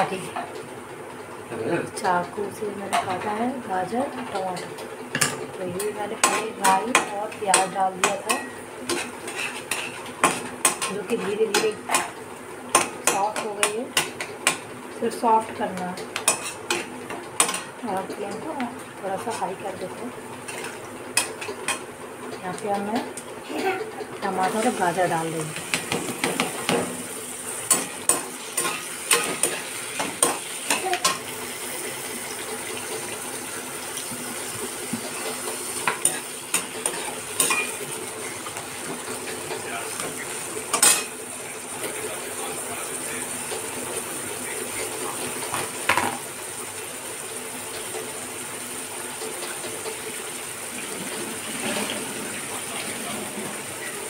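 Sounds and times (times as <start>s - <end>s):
frying sizzle: 0.0s - 54.0s
spoon clinking and scraping pan: 16.2s - 17.7s, 35.8s - 38.4s.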